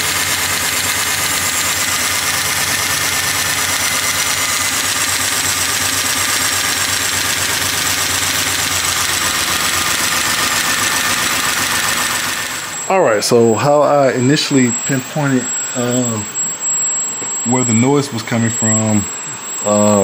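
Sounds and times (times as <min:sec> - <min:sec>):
engine tapping noise: 0:00.0 - 0:12.8
engine idling: 0:00.0 - 0:12.9.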